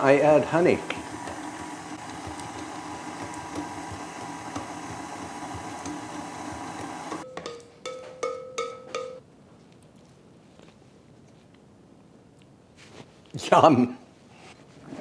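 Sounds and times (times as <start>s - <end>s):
stand mixer running: 0.0s - 7.2s.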